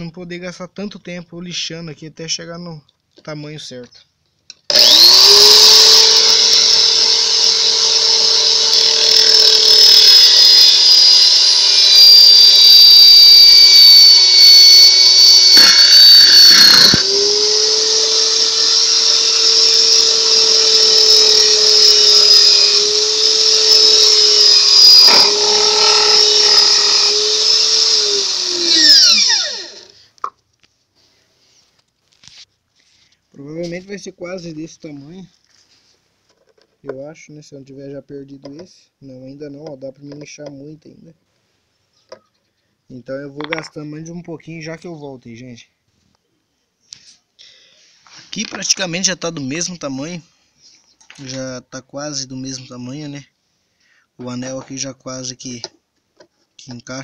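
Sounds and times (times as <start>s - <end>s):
electric drill whining: 4.7s - 30.0s.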